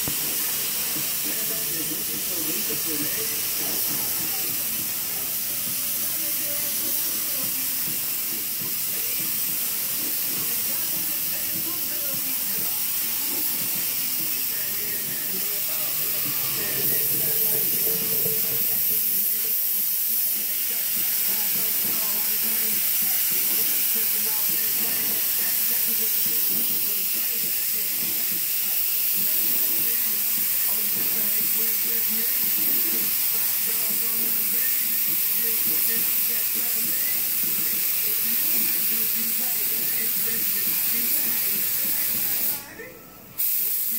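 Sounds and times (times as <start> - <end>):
paint spray gun hissing: 0.0 - 42.6, 43.4 - 43.9.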